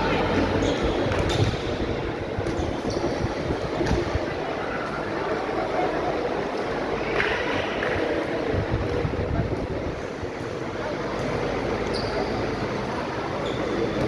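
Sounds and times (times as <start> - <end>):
crowd chatter: 0.0 - 14.0
fan noise: 0.0 - 14.0.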